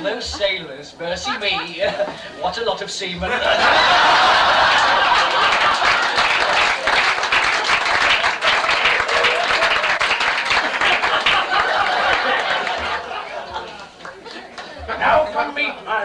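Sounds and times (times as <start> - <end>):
audience applause: 3.5 - 14.8.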